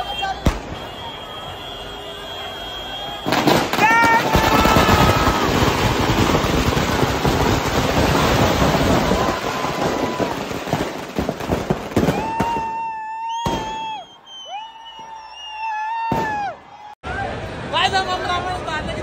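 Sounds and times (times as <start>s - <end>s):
steady high whistle: 0.0s - 3.4s, 12.6s - 16.0s
firecrackers banging and crackling: 3.2s - 14.1s.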